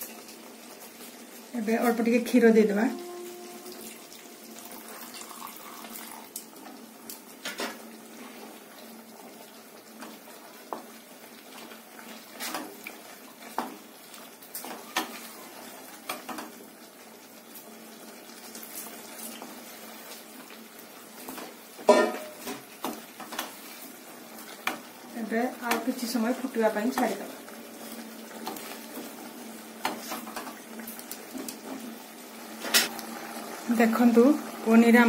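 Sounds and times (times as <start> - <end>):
curry bubbling hiss: 0.0 - 35.0
milk pouring into curry: 4.6 - 6.4.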